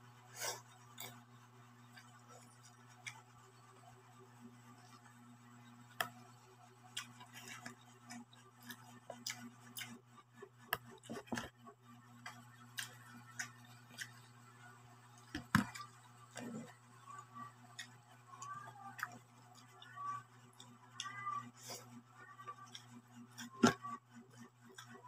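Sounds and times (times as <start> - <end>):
low electrical hum: 0.0 - 25.0
chewing and lip smacks: 6.9 - 10.0.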